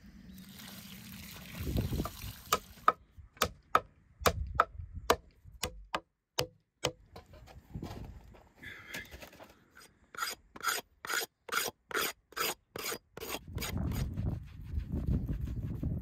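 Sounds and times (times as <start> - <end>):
knife scraping wooden block: 9.8 - 14.1.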